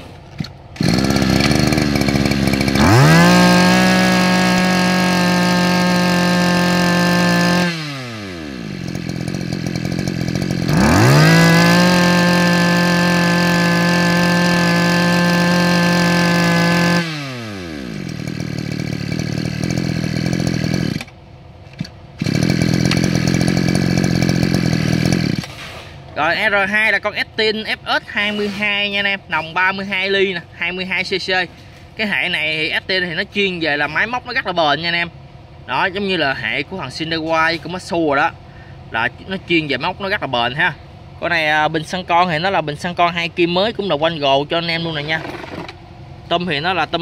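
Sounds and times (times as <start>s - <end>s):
brush cutter engine revving: 0.0s - 25.8s, 45.0s - 45.8s.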